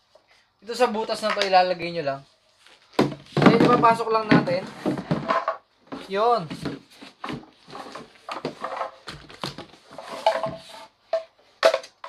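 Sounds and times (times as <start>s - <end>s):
plastic parts knocking and clattering: 2.9s - 12.0s.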